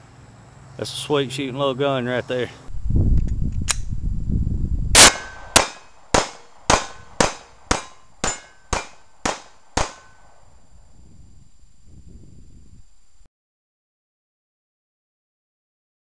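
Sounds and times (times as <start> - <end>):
low rumble on microphone: 2.7 - 5.5, 10.2 - 13.3
pistol shots: 5.0 - 10.3
bullets ringing on steel targets: 5.0 - 10.4.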